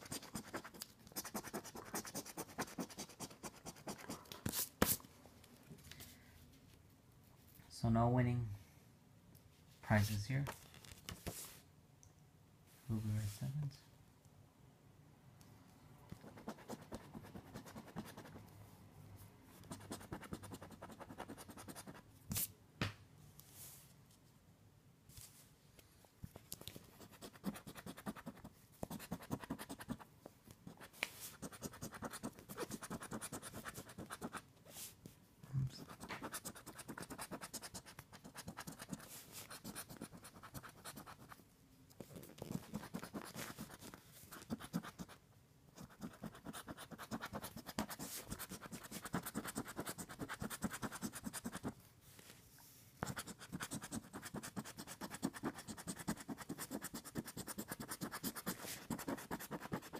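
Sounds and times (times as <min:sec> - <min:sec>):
scratching lottery ticket: 0:00.0 - 0:04.2, 0:27.0 - 0:30.0, 0:31.3 - 0:34.4, 0:35.8 - 0:41.4, 0:45.8 - 0:51.7, 0:53.0 - 0:59.9.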